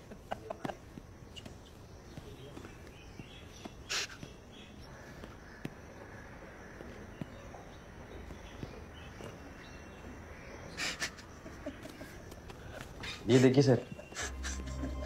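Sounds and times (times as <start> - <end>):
woman sobbing: 14.0 - 15.0.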